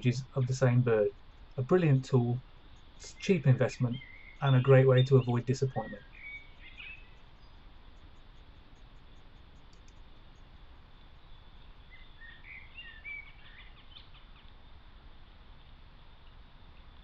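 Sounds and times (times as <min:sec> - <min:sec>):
outdoor hiss and low rumble: 0:00.0 - 0:17.0.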